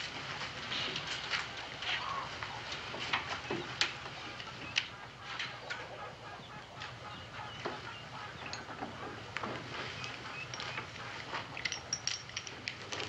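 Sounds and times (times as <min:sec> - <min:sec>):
chickens clucking: 0:00.7 - 0:12.0
knocks and rustles of handling: 0:08.5 - 0:13.0.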